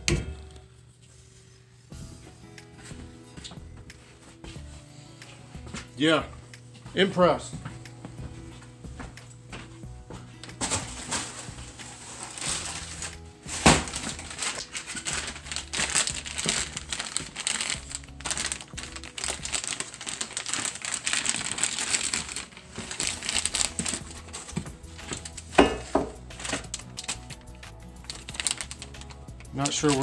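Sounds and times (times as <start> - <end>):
plastic bag crinkling: 10.5 - 30.0.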